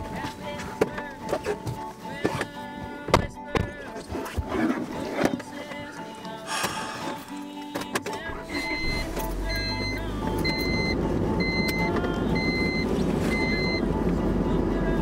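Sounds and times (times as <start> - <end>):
car low rumble: 8.2 - 15.0
car warning chime beeping: 8.4 - 14.0.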